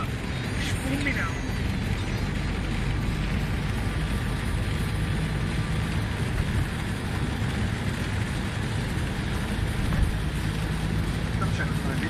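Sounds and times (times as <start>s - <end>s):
rain beating on car body: 0.0s - 12.0s
vehicle engine and road noise: 0.0s - 12.0s
wet tyres hissing: 0.0s - 12.0s.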